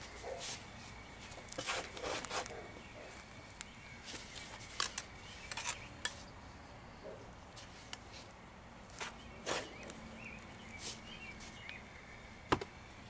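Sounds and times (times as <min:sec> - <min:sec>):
trowel scraping against stone: 0:01.6 - 0:02.5.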